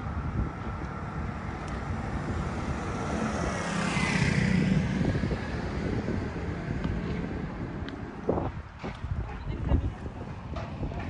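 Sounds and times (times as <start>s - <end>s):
wind buffeting microphone: 0.0s - 11.0s
motor scooter engine approaching: 1.9s - 7.4s.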